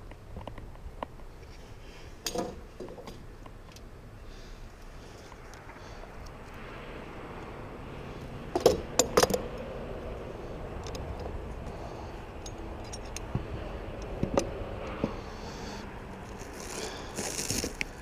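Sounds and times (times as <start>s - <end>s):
steady background noise: 0.0s - 18.0s
sharp metal clinks and knocks: 12.4s - 13.3s.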